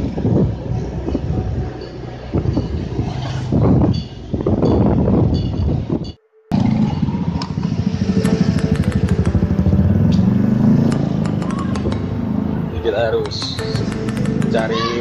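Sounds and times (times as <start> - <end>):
motorcycle engine running: 6.5 - 12.8, 13.4 - 14.6
sharp clicks: 8.2 - 10.2, 10.9 - 12.1, 13.2 - 14.7.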